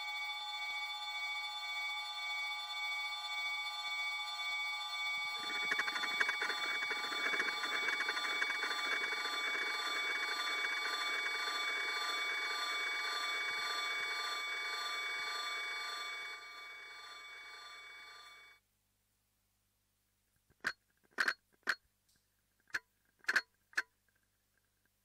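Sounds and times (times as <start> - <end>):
fluttering electronic ringing tones: 0.0 - 18.6.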